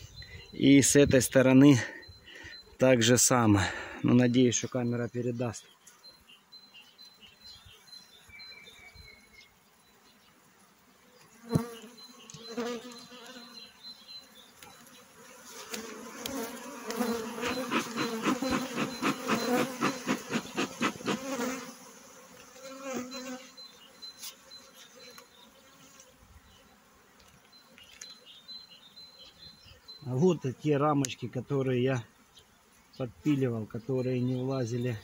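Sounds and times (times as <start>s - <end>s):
honeybees buzzing: 0.0s - 35.0s
bee smoker bellows puffing: 15.6s - 21.7s.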